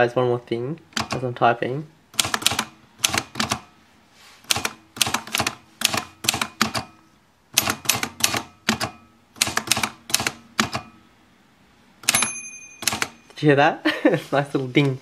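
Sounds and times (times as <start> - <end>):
manual typewriter typing: 0.9 - 1.3, 2.2 - 3.7, 4.5 - 7.0, 7.6 - 11.0, 12.0 - 13.2.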